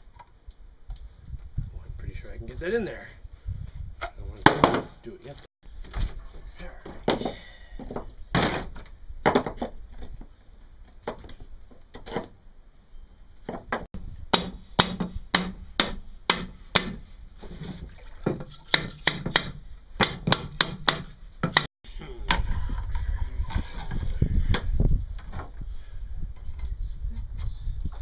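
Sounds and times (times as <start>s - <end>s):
sharp knocks on metal parts: 13.7s - 17.0s, 18.7s - 21.7s.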